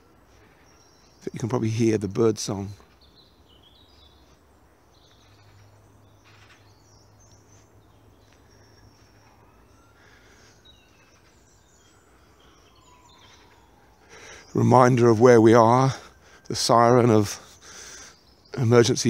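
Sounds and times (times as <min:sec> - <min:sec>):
distant emergency siren: 0:00.0 - 0:01.0, 0:07.3 - 0:18.2
distant traffic rumble: 0:00.0 - 0:19.0
songbirds chirping: 0:00.0 - 0:19.0.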